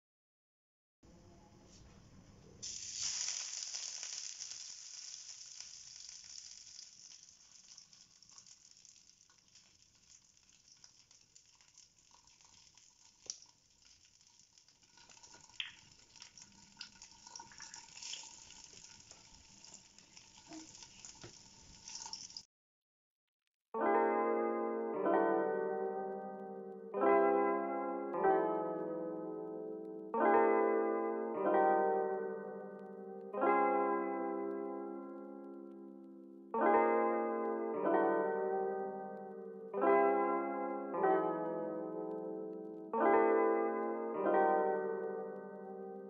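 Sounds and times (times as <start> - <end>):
patty sizzling in hot oil: 2.6 - 22.5.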